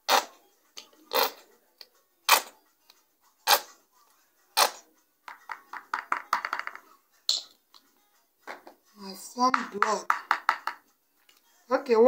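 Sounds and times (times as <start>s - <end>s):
spoon knocking plastic bowl: 5.3s - 7.6s, 9.4s - 10.9s.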